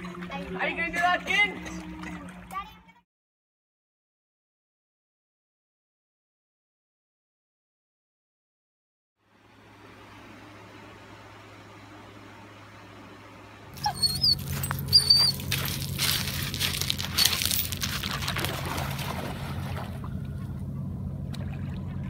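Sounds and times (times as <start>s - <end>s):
short high squeaks: 13.8s - 15.6s, 17.1s - 17.8s
dog running on pebbles: 14.2s - 19.1s
dog splashing through water: 14.4s - 20.0s.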